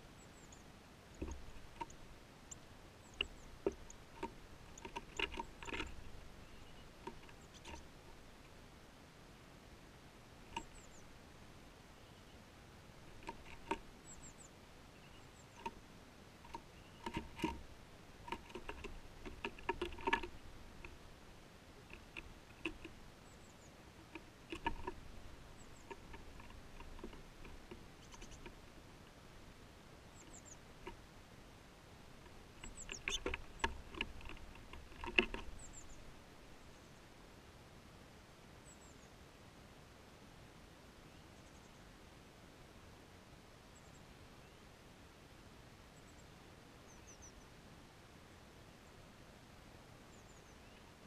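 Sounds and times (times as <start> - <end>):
bird pecking at feeder: 1.1 - 8.6, 10.4 - 10.8, 13.0 - 14.2, 15.4 - 15.8, 16.4 - 31.1, 32.1 - 36.2.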